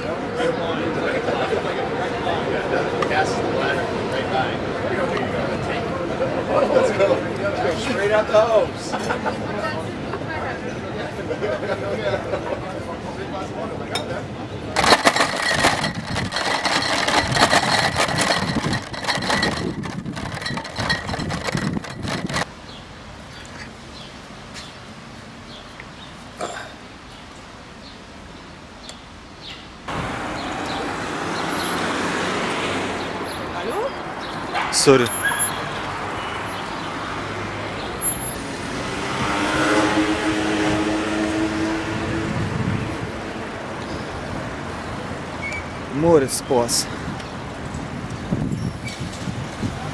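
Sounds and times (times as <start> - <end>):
street traffic noise: 0.0 - 49.9
vehicle engine hum: 14.6 - 22.7
glass bottles rattling in crate: 14.8 - 22.5.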